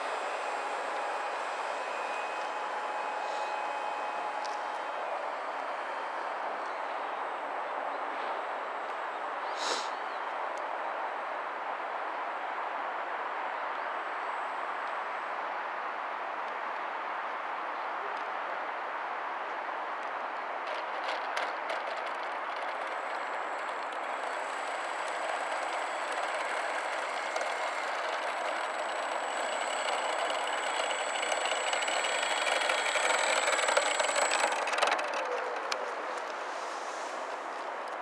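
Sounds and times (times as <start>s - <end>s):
model plane electric motor whir: 0.0s - 9.8s, 20.6s - 38.0s.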